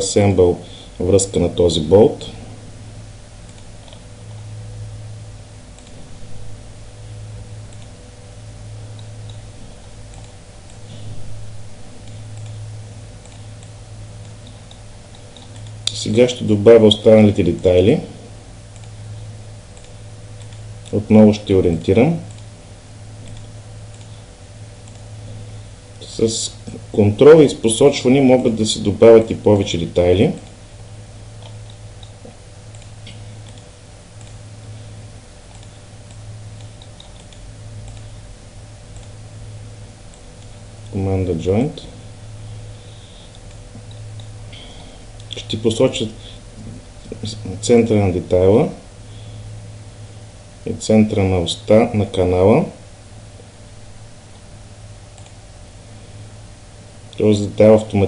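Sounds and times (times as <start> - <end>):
low hum: 0.0 - 58.0
computer mouse clicks: 3.5 - 4.1, 5.8 - 6.0, 10.1 - 10.8, 12.0 - 12.6, 13.2 - 15.9, 18.7 - 19.0, 19.8 - 21.0, 22.3 - 22.5, 23.2 - 24.1, 24.8 - 25.1, 31.4 - 34.4, 35.5 - 38.1, 55.2 - 55.4.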